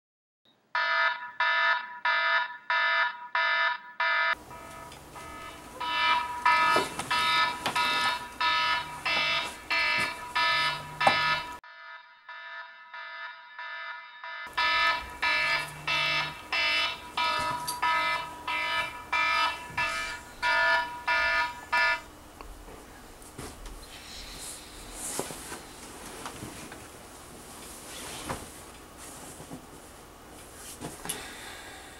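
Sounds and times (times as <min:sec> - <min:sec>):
alarm clock beeping: 0:00.8 - 0:22.1.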